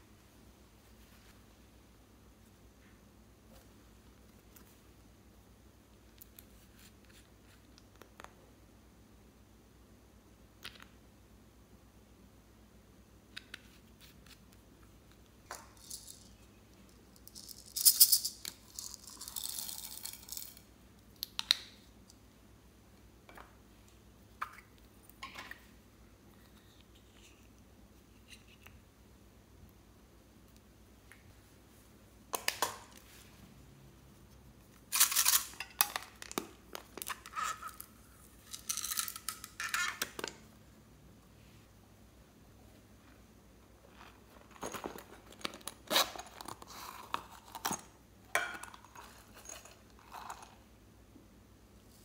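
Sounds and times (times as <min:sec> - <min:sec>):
plastic beads rattling: 0:15.5 - 0:20.7, 0:34.9 - 0:36.0, 0:37.0 - 0:40.0.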